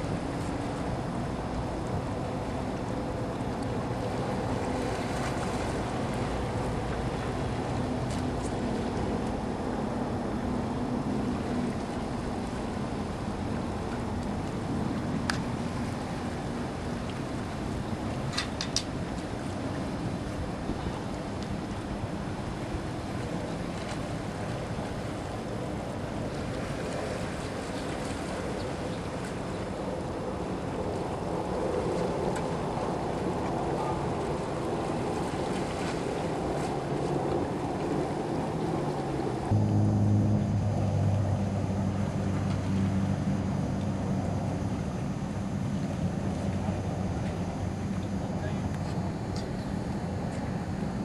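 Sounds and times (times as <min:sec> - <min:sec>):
distant engine hum: 0:00.0 - 0:51.0
sea waves: 0:00.0 - 0:51.0
water noise: 0:00.0 - 0:51.0
wind: 0:00.0 - 0:51.0
low rumble: 0:39.4 - 0:51.0.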